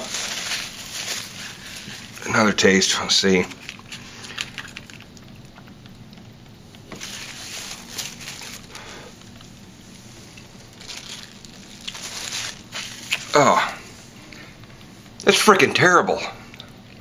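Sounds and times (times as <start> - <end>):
steady low hum: 0.0 - 17.0
soft chewing: 3.5 - 13.3.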